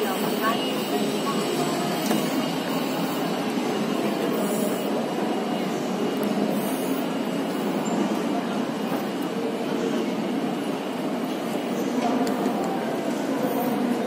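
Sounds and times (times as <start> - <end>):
terminal hall background noise: 0.0 - 14.0.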